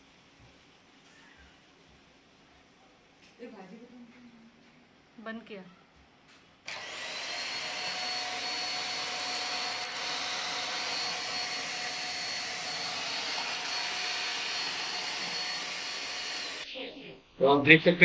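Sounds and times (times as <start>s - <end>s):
handheld vacuum cleaner whining: 6.7s - 16.7s.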